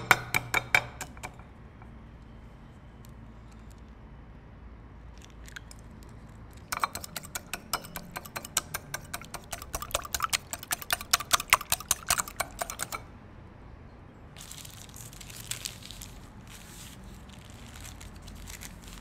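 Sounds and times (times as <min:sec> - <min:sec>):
whisk clicking against bowl: 0:06.7 - 0:13.1.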